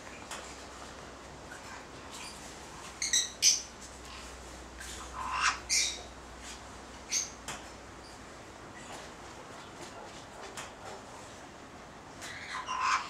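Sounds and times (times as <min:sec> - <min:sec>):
parrots squawking: 0:05.1 - 0:06.0, 0:12.2 - 0:13.0.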